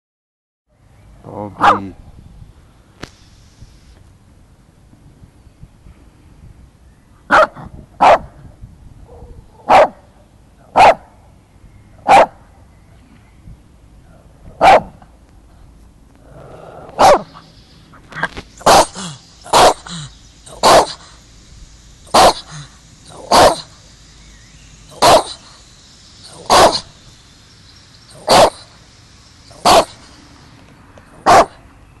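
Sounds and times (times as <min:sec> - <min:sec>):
dog barking: 0:01.6 - 0:01.9, 0:07.3 - 0:08.3, 0:09.1 - 0:10.0, 0:10.7 - 0:11.2, 0:12.0 - 0:12.4, 0:14.6 - 0:15.0, 0:17.0 - 0:17.4, 0:18.6 - 0:19.9, 0:20.5 - 0:21.0, 0:22.1 - 0:23.7, 0:25.0 - 0:25.4, 0:26.3 - 0:26.9, 0:28.2 - 0:28.6, 0:29.6 - 0:30.0, 0:31.2 - 0:31.6.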